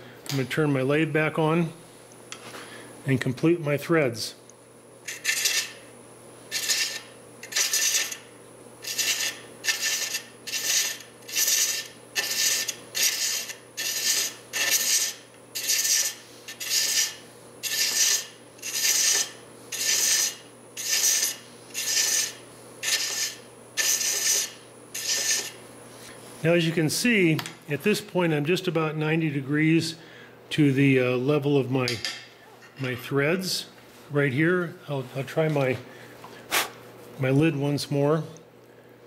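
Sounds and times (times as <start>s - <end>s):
lathe humming: 8.8s - 26.1s
thread chaser scraping wood: 8.8s - 26.2s.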